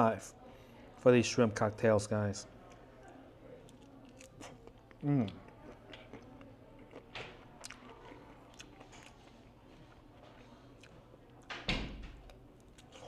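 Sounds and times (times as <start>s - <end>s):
person chewing food: 2.6s - 11.4s, 12.3s - 13.0s.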